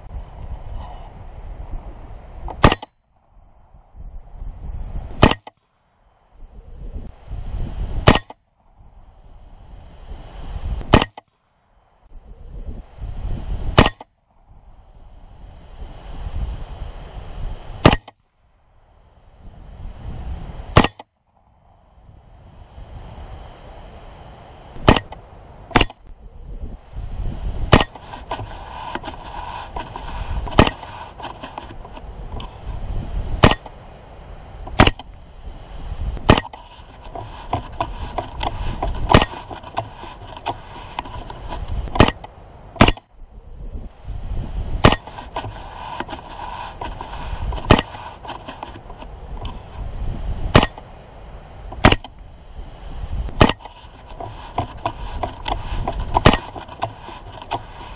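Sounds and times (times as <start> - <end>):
bullet ringing on steel target: 8.1 - 8.6, 13.8 - 14.4, 20.8 - 21.4, 33.4 - 33.8, 50.6 - 50.9.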